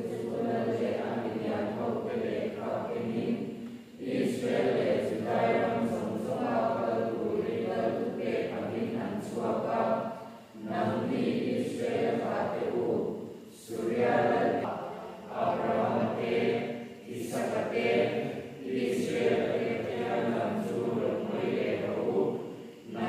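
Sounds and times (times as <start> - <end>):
congregation singing in unison: 0.0 - 23.0.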